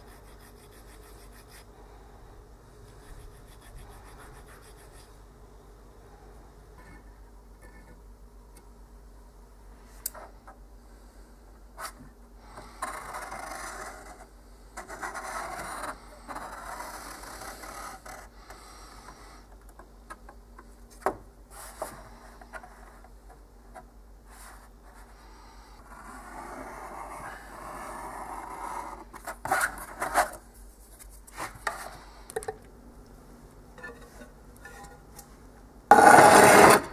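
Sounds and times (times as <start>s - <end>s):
metal tool scraping a surface: 35.9s - 36.9s
tool scoring along a straightedge: 35.9s - 36.9s.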